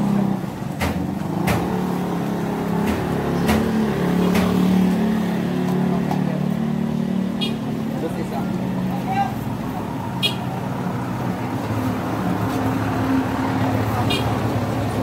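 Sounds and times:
sharp clicks and clacks: 0.7 - 1.8, 2.7 - 4.8.

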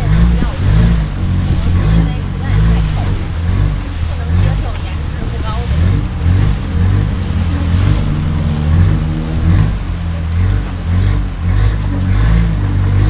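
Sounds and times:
boat engine running: 0.0 - 13.0.

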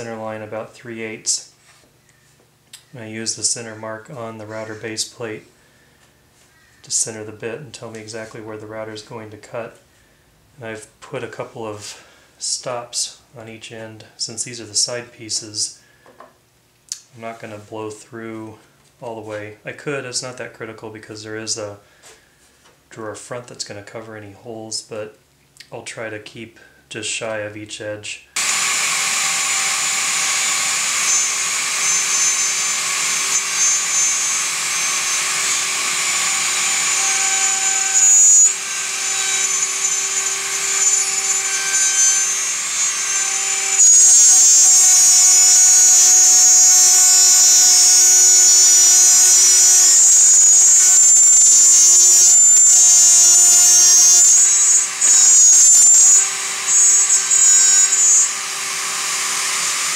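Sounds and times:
router cutting wood whine: 28.4 - 59.9.

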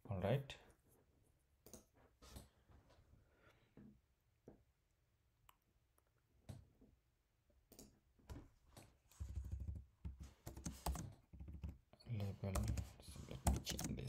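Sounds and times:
rapid keyboard typing: 9.2 - 14.0.

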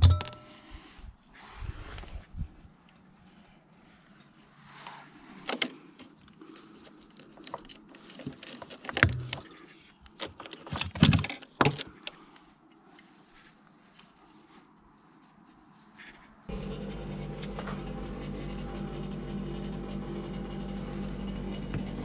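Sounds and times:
jingling: 0.0 - 0.8.

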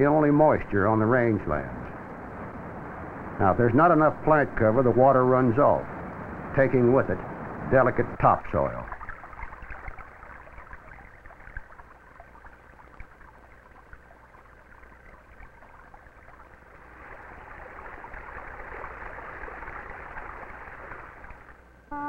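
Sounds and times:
stream water rushing: 14.9 - 21.6.

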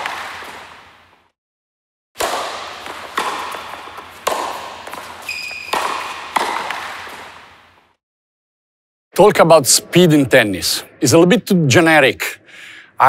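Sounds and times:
sharp reverberant hits: 2.2 - 7.6.

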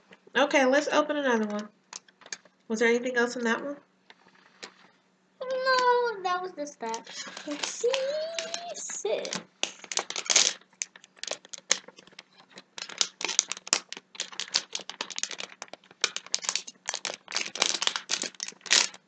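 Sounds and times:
wrapper crinkling: 6.8 - 19.0.

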